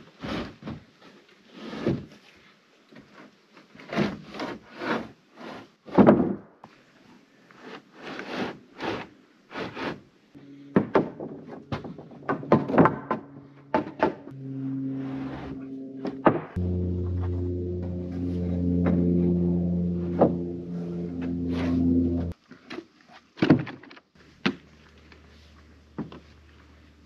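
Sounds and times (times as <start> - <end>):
wooden boards knocking and scraping: 10.7 - 14.2
background music with held tones: 14.3 - 22.4.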